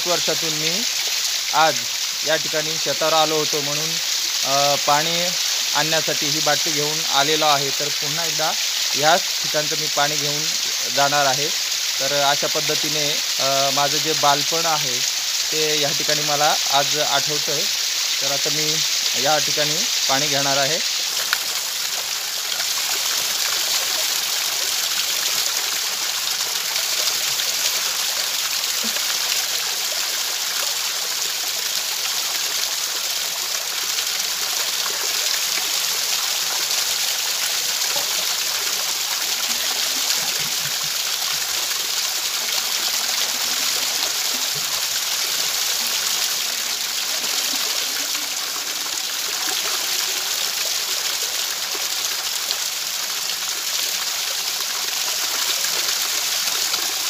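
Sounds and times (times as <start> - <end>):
water splashing onto rocks: 19.8 - 57.0.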